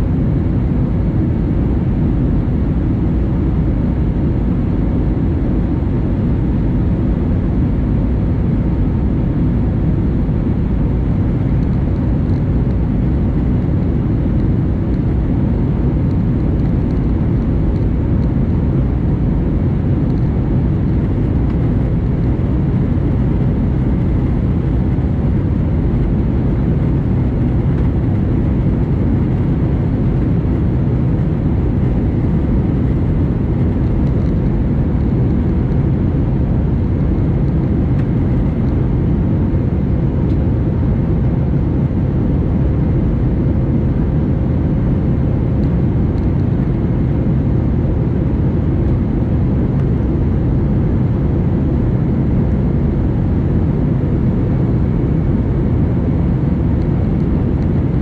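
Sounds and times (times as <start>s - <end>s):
faint steady hum: 0.0s - 58.0s
jet engines and airflow rumble: 0.0s - 58.0s.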